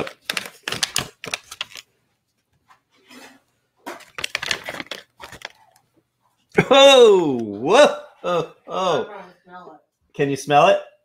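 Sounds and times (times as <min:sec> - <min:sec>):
snack package crinkling and tearing: 0:00.0 - 0:01.9, 0:03.9 - 0:05.8.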